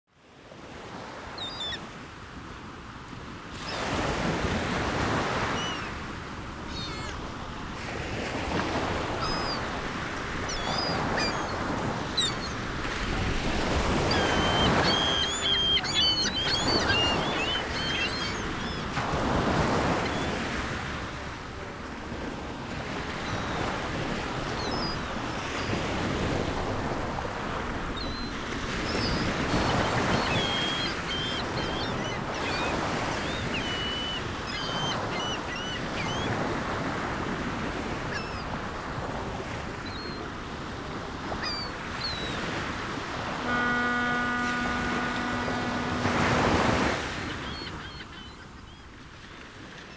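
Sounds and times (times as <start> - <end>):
surf washing in and out: 0.2 - 49.9
seagulls crying: 4.9 - 6.0, 6.6 - 7.3, 8.2 - 21.4, 22.8 - 27.1, 27.9 - 40.3, 41.2 - 49.0.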